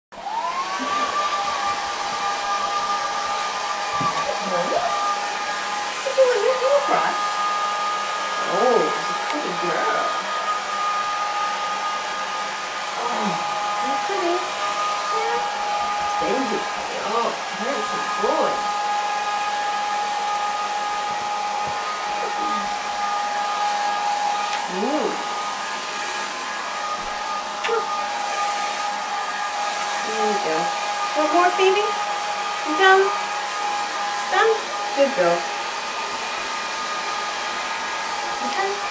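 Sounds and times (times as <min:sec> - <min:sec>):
short rising and falling whines: 0:00.2 - 0:36.0
hair dryer blowing: 0:00.2 - 0:38.9.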